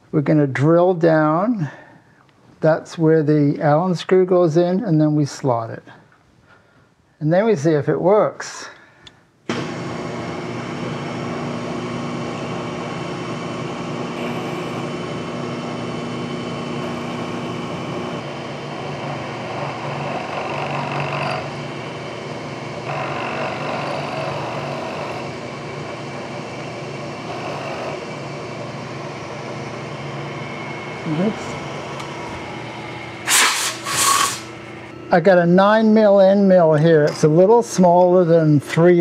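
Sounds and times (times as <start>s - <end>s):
milling machine spindle running: 9.5s - 35.0s
drill bit cutting metal: 10.4s - 34.9s.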